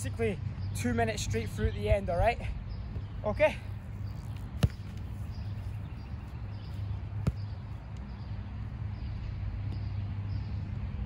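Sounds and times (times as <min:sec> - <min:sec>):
ball kicked: 0:04.0 - 0:05.5, 0:06.7 - 0:07.6.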